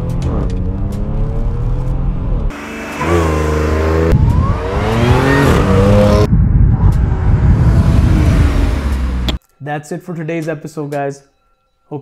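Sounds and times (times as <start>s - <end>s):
car engine accelerating: 0.0s - 9.4s.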